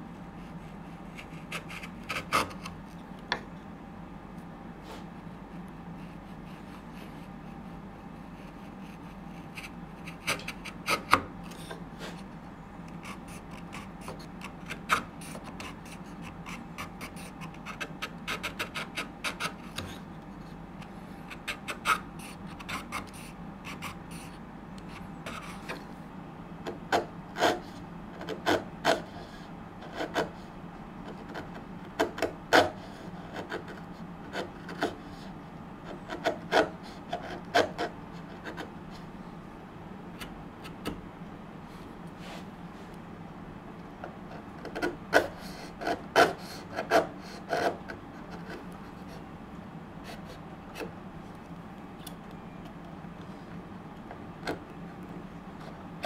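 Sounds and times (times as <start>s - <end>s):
chisel scraping wood: 0.7s - 2.8s, 8.4s - 12.2s, 44.6s - 48.7s.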